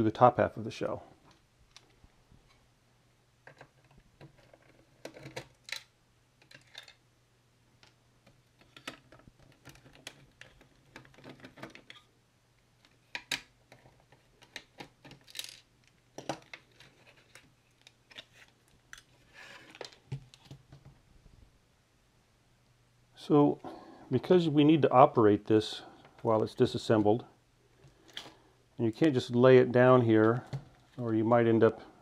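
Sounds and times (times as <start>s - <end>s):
small clicks and rattles of disassembly: 3.4s - 7.0s, 7.8s - 12.1s, 12.8s - 20.9s.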